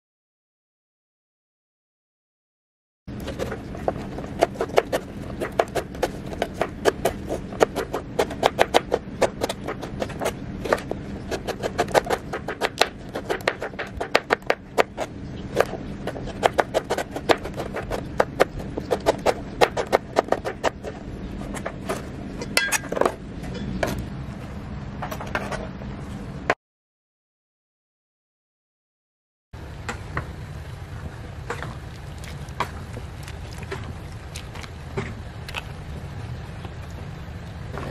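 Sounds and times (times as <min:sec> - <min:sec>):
knife chopping on plastic board: 0:03.4 - 0:20.9.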